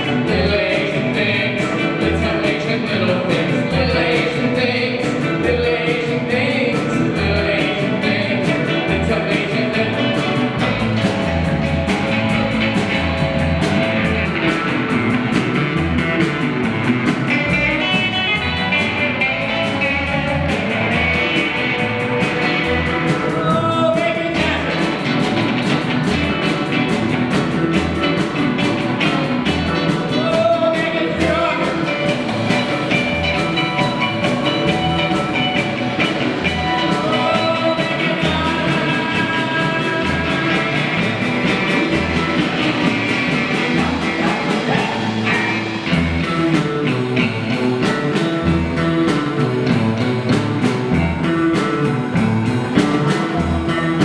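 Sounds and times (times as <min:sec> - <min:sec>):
distorted guitars strummed: 0:00.0 - 0:54.0
rock band playing: 0:00.0 - 0:54.0.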